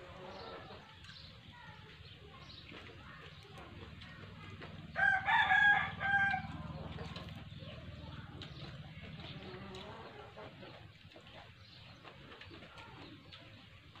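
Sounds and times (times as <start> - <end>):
rooster crowing: 5.0 - 6.8.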